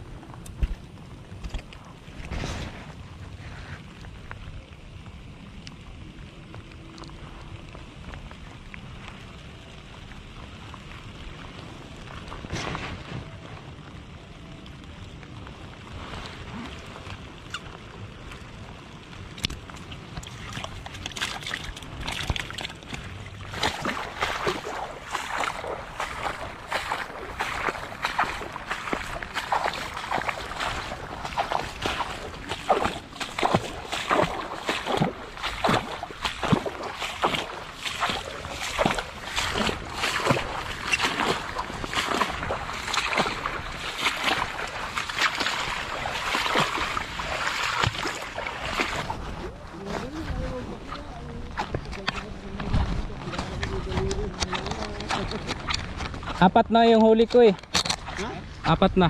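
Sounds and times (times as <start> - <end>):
feet sloshing through water plants: 6.4 - 58.6
footsteps through tall grass: 23.4 - 51.0.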